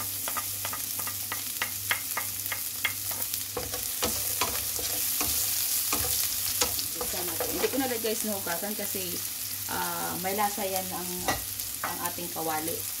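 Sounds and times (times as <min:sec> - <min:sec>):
wooden spatula stirring in pan: 0:00.0 - 0:07.9
onion sizzling in hot oil: 0:00.0 - 0:13.0.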